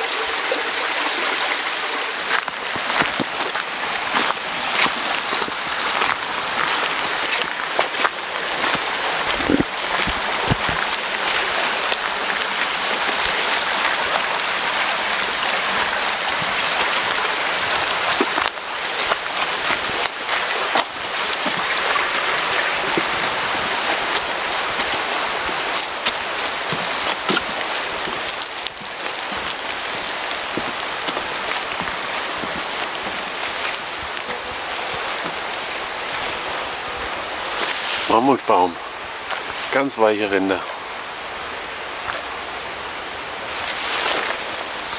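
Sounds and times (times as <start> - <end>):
rain hissing: 0.0 - 44.9
running water: 0.0 - 44.9.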